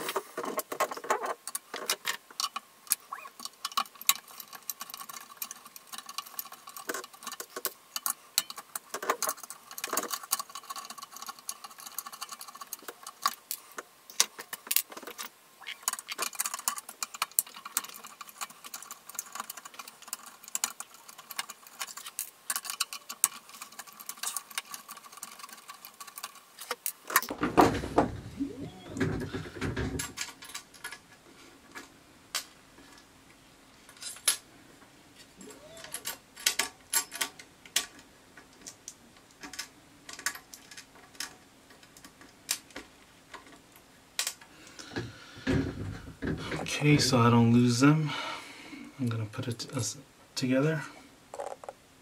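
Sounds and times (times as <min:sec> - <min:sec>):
pliers and metal parts clinking: 0:35.6 - 0:38.0.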